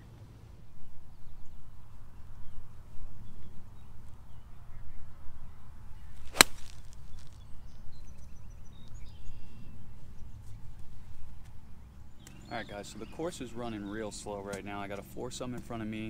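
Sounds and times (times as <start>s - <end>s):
golf club striking ball: 6.2s - 7.4s.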